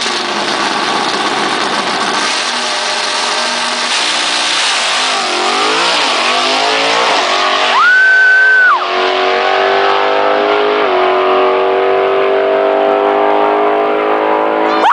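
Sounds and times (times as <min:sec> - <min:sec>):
car engine accelerating through gears: 0:00.0 - 0:14.9
loud high whistle: 0:07.7 - 0:08.9.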